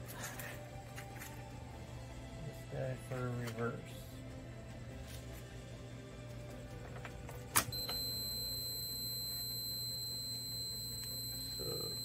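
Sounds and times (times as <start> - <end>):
multimeter continuity beep: 7.7 - 12.0.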